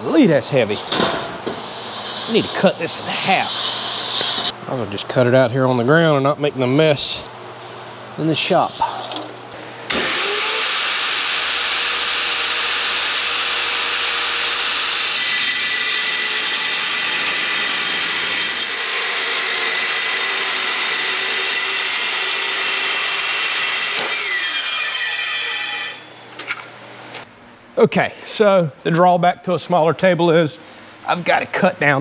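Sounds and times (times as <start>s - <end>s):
angle grinder cutting steel: 8.9s - 26.1s.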